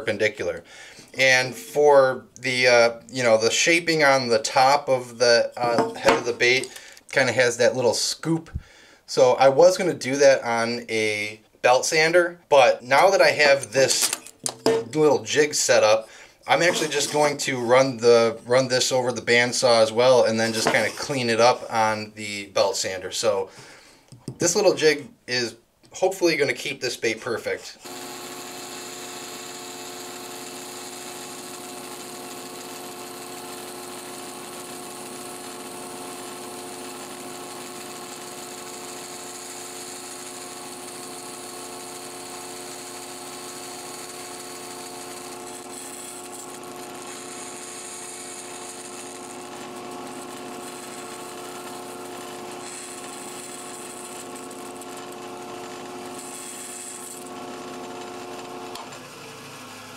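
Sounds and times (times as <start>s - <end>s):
bandsaw cutting wood: 4.0s - 6.9s, 16.0s - 18.6s, 19.6s - 21.9s, 27.8s - 59.9s.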